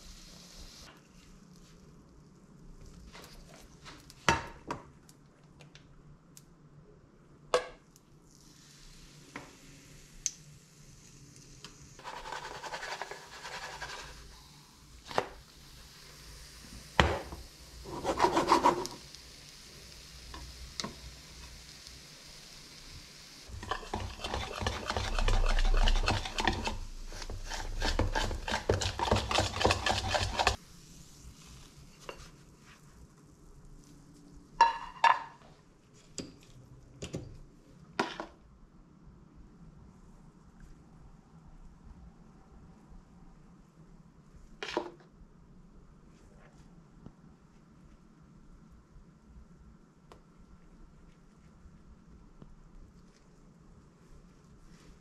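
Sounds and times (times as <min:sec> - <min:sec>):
batter sizzling in a frying pan: 0:00.0 - 0:00.9, 0:08.2 - 0:33.0
spatula scraping a pan: 0:12.0 - 0:14.3, 0:17.8 - 0:19.1, 0:23.5 - 0:30.6.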